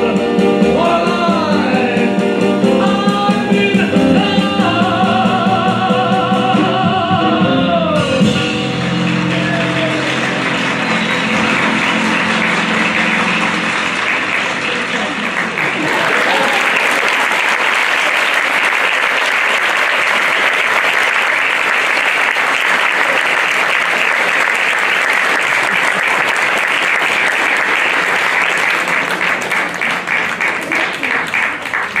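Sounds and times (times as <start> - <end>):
audience applauding: 8.3 - 32.0.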